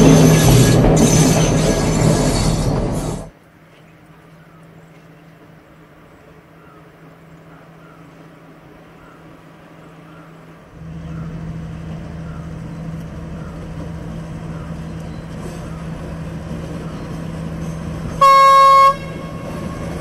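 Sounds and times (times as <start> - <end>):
diesel train engine drone: 0.0 - 3.4, 4.7 - 20.0
train horn blast: 18.1 - 20.0.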